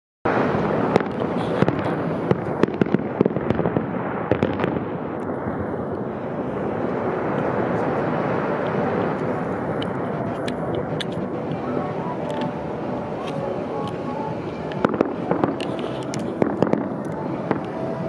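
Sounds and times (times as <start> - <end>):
fireworks bangs and crackles: 0.3 - 18.0.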